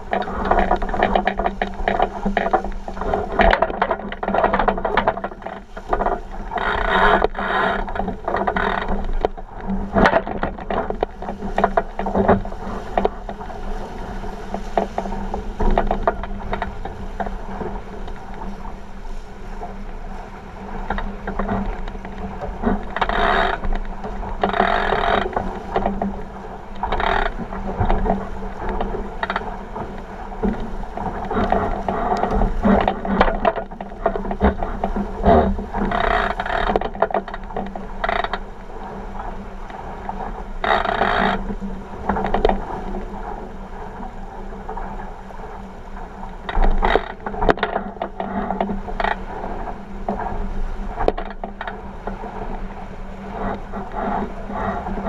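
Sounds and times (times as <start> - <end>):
rigging knocks and rattles: 0.0 - 13.5
water rushing along hull: 0.0 - 55.0.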